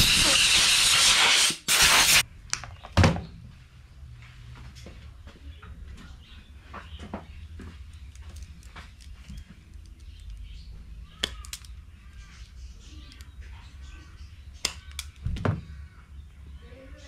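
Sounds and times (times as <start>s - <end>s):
birds calling: 5.4s - 17.0s.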